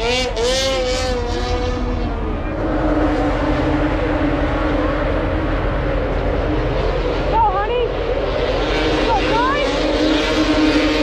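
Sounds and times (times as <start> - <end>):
snowmobile engines running: 0.0 - 11.0.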